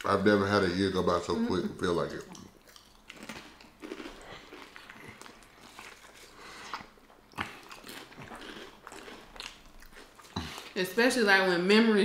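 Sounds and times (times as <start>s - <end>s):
wet chewing: 1.8s - 10.8s
potato chips crunching: 2.1s - 10.8s.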